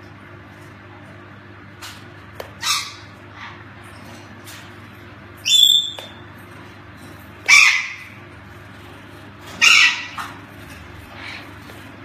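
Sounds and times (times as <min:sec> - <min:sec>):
harsh squawks: 0:02.6 - 0:03.6, 0:05.4 - 0:06.1, 0:07.4 - 0:08.2, 0:09.5 - 0:10.4
macaw calling: 0:05.4 - 0:06.1, 0:07.4 - 0:08.2, 0:09.6 - 0:10.3.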